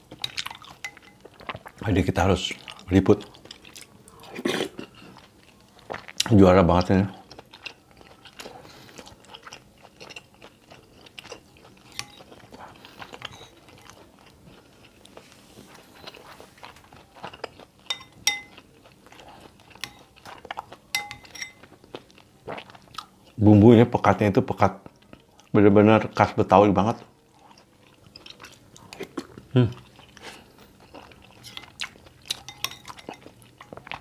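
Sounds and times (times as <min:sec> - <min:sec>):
person chewing: 0:00.0 - 0:01.8, 0:02.5 - 0:06.3, 0:07.2 - 0:23.4, 0:27.0 - 0:34.0
metal spoon clinking glass bowl: 0:00.8 - 0:01.3, 0:17.9 - 0:18.6, 0:20.9 - 0:21.6, 0:32.3 - 0:33.2.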